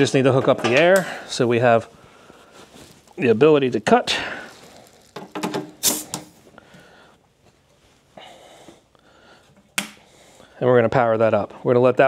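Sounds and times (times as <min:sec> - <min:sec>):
short hiss of air: 0:05.8 - 0:06.4.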